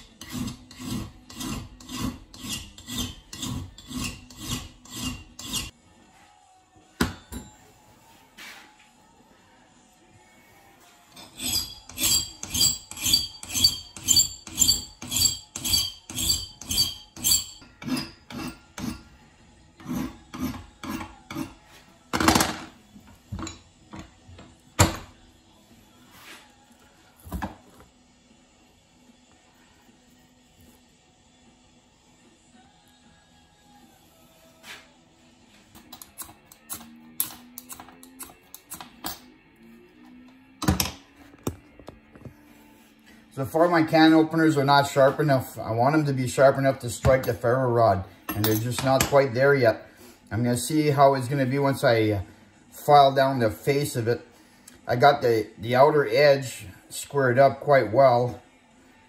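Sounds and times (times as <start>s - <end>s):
loud metal scrape: 0.0s - 5.7s
hand file rasping on metal: 0.0s - 5.8s, 11.2s - 19.1s, 19.8s - 21.7s
metal tools clicking and scraping: 11.1s - 19.1s, 35.7s - 39.3s, 48.3s - 49.2s.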